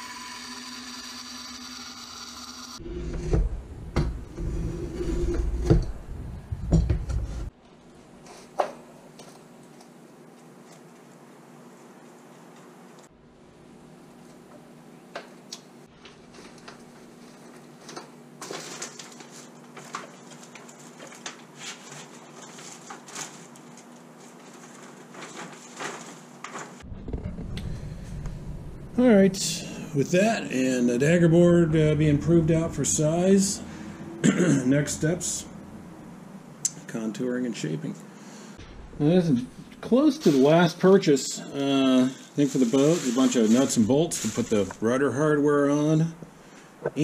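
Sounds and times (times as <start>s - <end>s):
band saw running: 0.0s - 2.8s
plastic rustling: 16.0s - 26.8s, 42.4s - 44.7s
low rumble: 26.8s - 34.2s, 38.6s - 39.8s.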